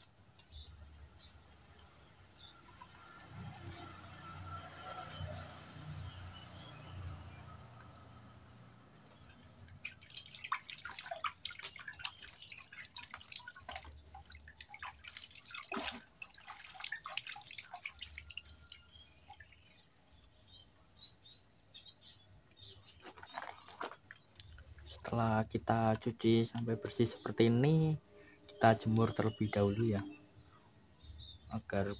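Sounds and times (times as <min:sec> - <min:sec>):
water splashing and dripping: 0:09.0 - 0:20.6.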